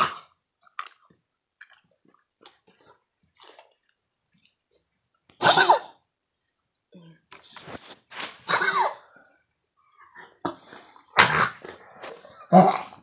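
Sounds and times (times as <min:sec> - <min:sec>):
dog coughing: 0:00.0 - 0:00.4, 0:05.4 - 0:06.0, 0:08.4 - 0:09.1, 0:11.1 - 0:11.8
faint clicks and mouth sounds: 0:00.6 - 0:05.4.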